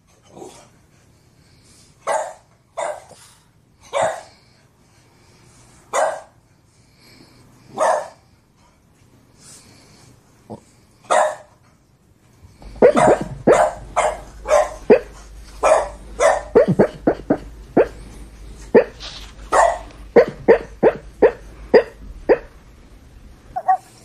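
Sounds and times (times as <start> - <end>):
dog barking: 2.0 - 3.2, 3.9 - 4.4, 5.9 - 6.4, 7.7 - 8.2, 11.1 - 11.5, 12.7 - 22.6, 23.6 - 24.0
low steady hum: 3.5 - 24.0.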